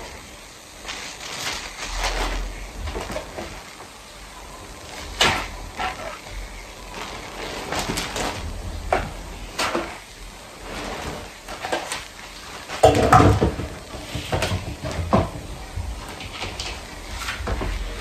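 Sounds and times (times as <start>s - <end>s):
kitchen knocks and clatters: 12.7s - 18.0s.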